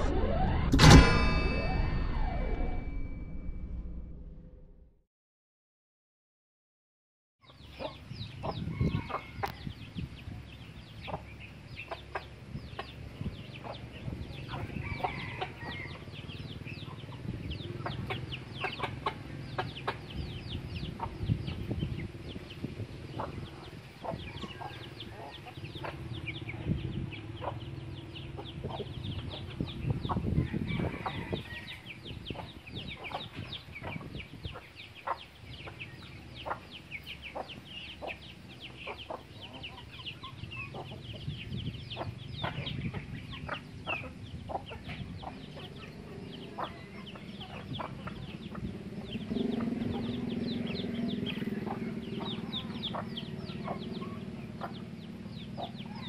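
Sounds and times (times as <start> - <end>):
low drone: 0.0 - 5.0, 45.5 - 56.0
chicks peeping: 7.4 - 56.0
hens clucking: 11.0 - 21.7, 23.1 - 41.3, 41.9 - 56.0.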